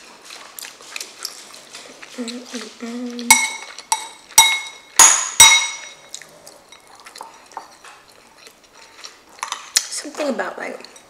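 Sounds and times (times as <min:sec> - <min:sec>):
metal spoon clinking on ceramic bowl: 0:03.3 - 0:06.1.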